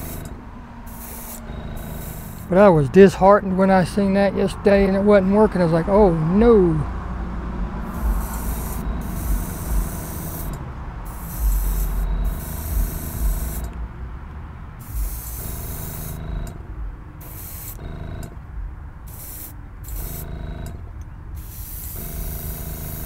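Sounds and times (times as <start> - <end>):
airbrush spraying paint: 0.0 - 0.3, 0.9 - 2.6, 7.8 - 13.7, 14.8 - 16.5, 17.2 - 18.0, 19.1 - 20.4, 21.4 - 23.0
air compressor humming: 0.0 - 23.0.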